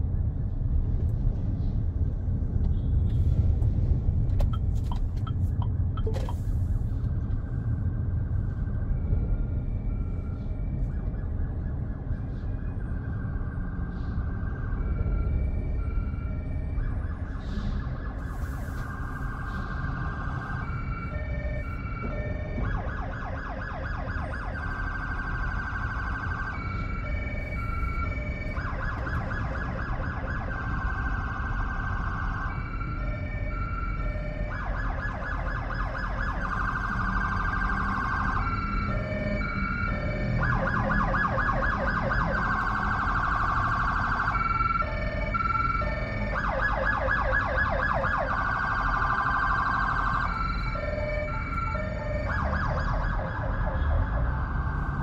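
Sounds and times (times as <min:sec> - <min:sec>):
low road rumble: 0:00.0 - 0:55.0
electronic siren warbling: 0:26.4 - 0:55.0.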